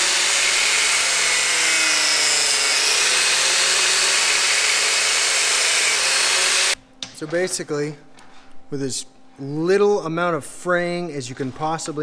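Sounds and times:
angle grinder cutting hose: 0.0s - 6.8s.

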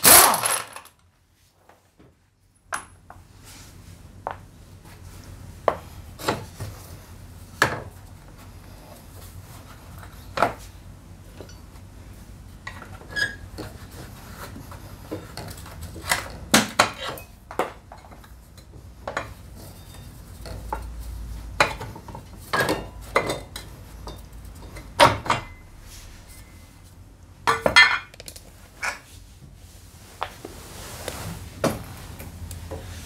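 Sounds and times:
metal tools clinking on concrete: 0.0s - 1.0s, 15.1s - 20.9s, 22.5s - 26.6s.

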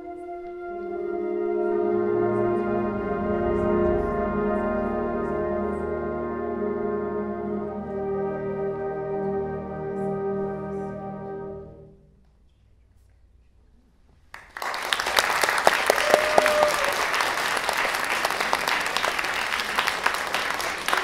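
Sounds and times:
audience applause: 14.3s - 21.0s.

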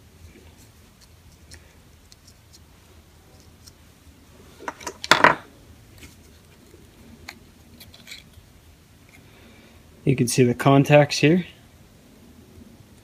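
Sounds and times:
parts clattering: 4.6s - 6.2s.

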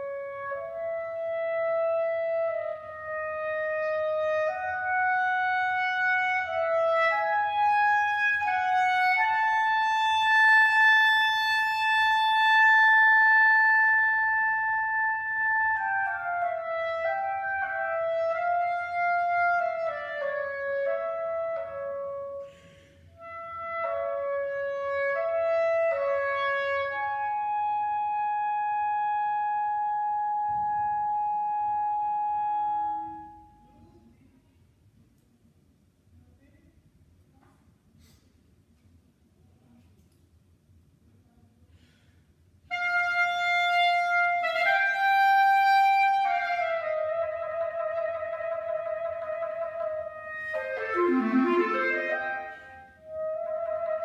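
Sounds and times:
solo clarinet melody: 0.0s - 22.6s, 23.2s - 33.7s, 42.7s - 54.0s.

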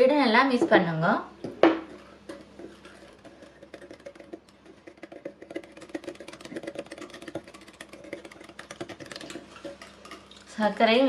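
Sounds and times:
whisk clicking against ceramic bowl: 1.9s - 10.6s.

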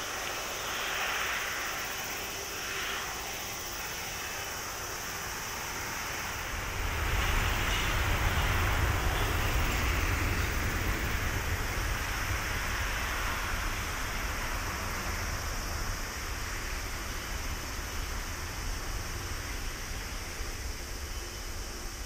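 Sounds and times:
jet engines roaring: 0.0s - 22.0s.

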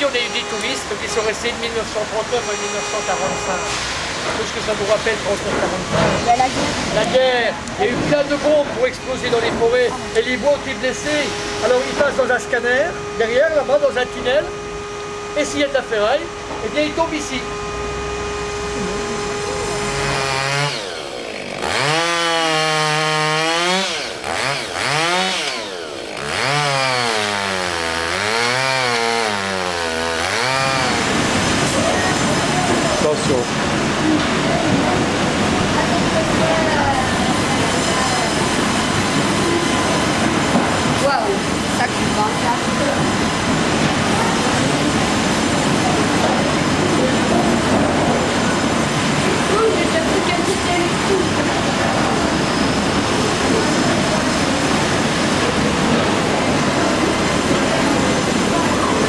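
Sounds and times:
sawmill machinery running: 0.0s - 59.0s
chainsaw cutting into log: 19.3s - 33.1s.

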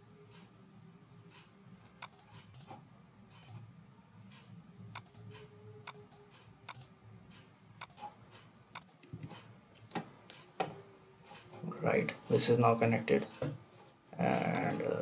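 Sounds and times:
low steady hum: 0.0s - 15.0s
computer mouse clicking: 1.3s - 3.7s, 4.3s - 10.4s.

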